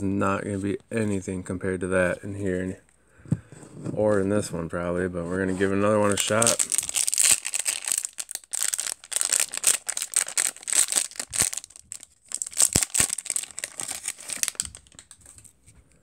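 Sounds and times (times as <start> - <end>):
plastic wrapper tearing and crinkling: 5.6 - 15.5.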